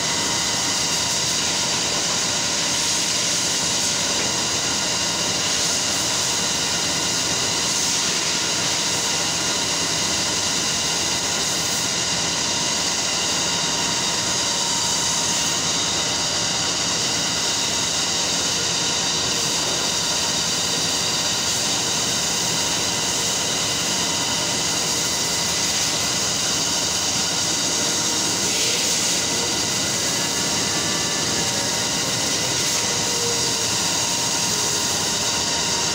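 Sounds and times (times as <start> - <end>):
textile mill machinery drone: 0.0 - 35.9
machinery whining tones: 8.9 - 35.9.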